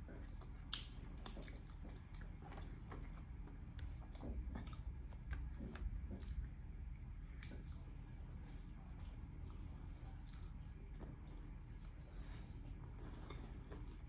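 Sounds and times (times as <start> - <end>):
person chewing meat: 0.0 - 14.0
lip smacks: 0.1 - 12.2.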